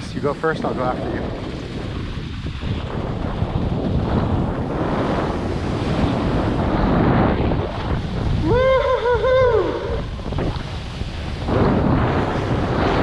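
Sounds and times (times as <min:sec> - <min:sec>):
wind rushing over microphone: 0:00.0 - 0:13.0
person whooping: 0:08.4 - 0:10.2.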